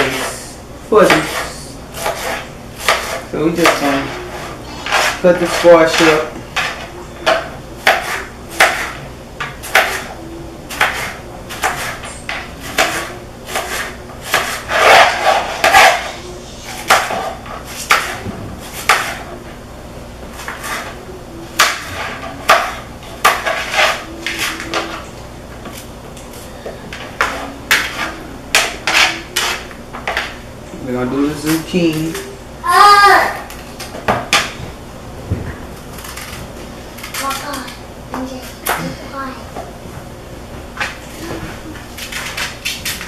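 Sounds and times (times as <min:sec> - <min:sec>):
knife chopping on plastic plate: 0:04.9 - 0:10.1, 0:10.7 - 0:16.0.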